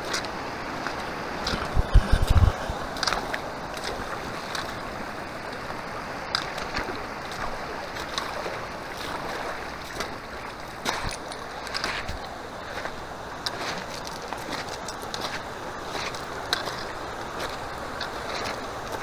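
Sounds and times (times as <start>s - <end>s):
shallow stream running: 0.0s - 19.0s
heavy low bumps: 1.5s - 2.9s.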